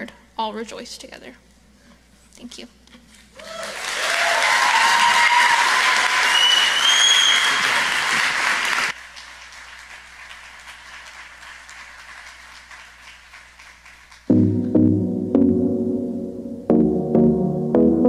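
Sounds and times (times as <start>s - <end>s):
audience applause: 3.4s - 14.3s
rising whistle: 4.8s - 8.0s
music: 14.3s - 18.0s.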